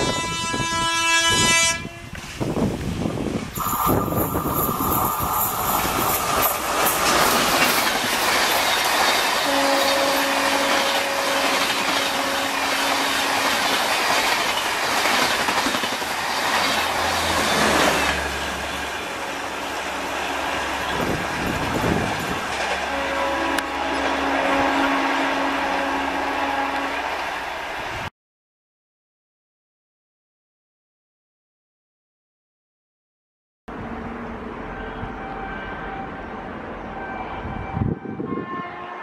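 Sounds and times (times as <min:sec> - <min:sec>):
train passing at speed: 0:00.0 - 0:28.1, 0:33.7 - 0:39.0
steady tone: 0:03.6 - 0:08.9
wheels clattering over rail joints: 0:03.6 - 0:19.1.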